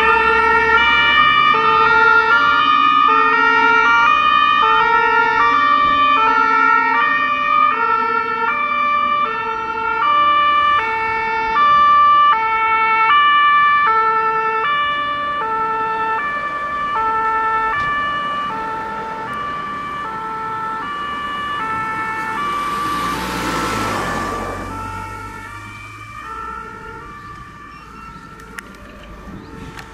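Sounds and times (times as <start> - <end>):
two-tone siren: 0.0 - 29.9
lorry passing by: 16.4 - 29.9.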